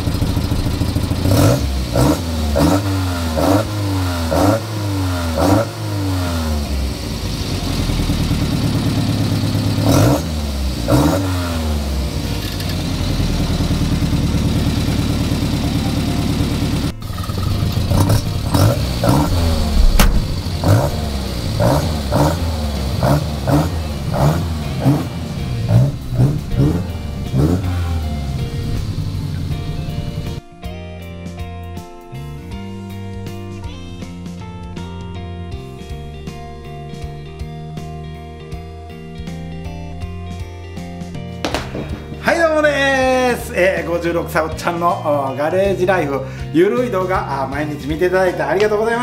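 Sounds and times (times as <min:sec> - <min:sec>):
car engine revving: 0:00.0 - 0:30.4.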